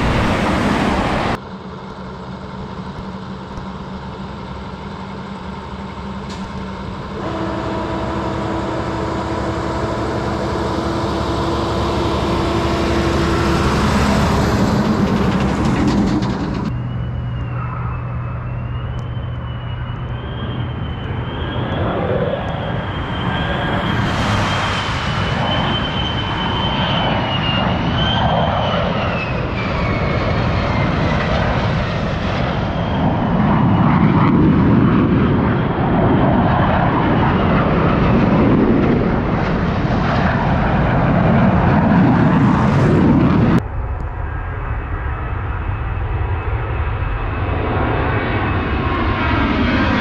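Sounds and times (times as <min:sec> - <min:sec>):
traffic noise: 0:00.0 - 0:26.8
thin wavering high whine: 0:00.0 - 0:38.2
truck engine and tyre noise: 0:00.0 - 0:50.0
truck rumbling on gravel: 0:10.1 - 0:16.9.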